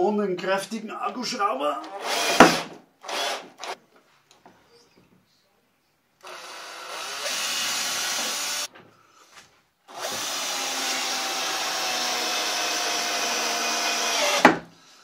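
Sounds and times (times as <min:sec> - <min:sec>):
drill motor driving screw: 0:01.9 - 0:03.8, 0:06.2 - 0:08.7, 0:09.9 - 0:14.5.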